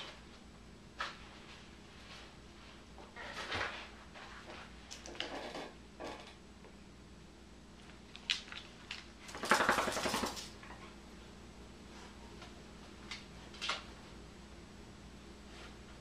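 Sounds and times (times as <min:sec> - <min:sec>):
dog claws clicking on wooden floor: 0:08.1 - 0:10.7
rapid clicking and rattling: 0:09.3 - 0:10.6.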